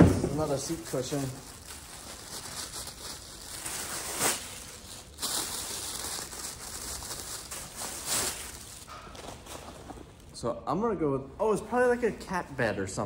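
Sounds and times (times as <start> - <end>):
packaging rustling and crinkling: 0.0 - 10.4
sharp crackle: 0.6 - 8.9.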